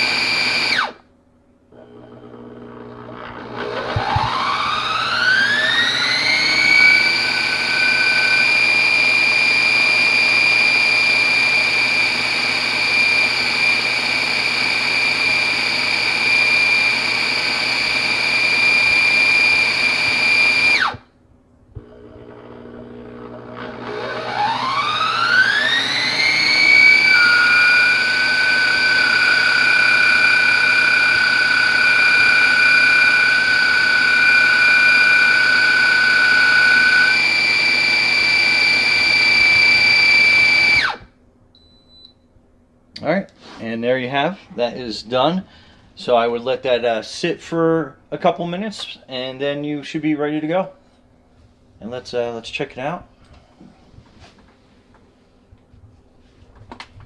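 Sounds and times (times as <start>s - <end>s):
blender motor whining: 0.0s - 1.0s, 1.7s - 21.1s, 21.8s - 41.2s.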